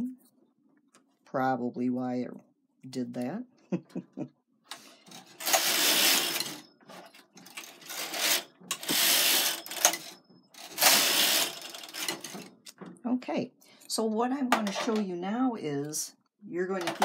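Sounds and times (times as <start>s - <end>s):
knitting machine carriage running: 5.1s - 6.6s, 7.4s - 12.5s.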